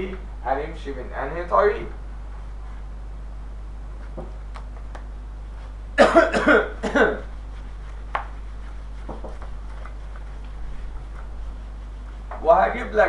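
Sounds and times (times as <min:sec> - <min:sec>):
low electrical hum: 0:00.0 - 0:13.0
man coughing: 0:06.0 - 0:07.3.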